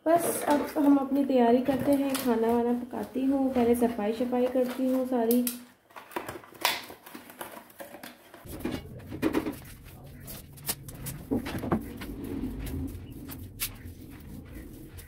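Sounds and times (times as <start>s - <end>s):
broom sweeping tiled floor: 8.5s - 15.0s
steady low hum: 8.5s - 15.0s.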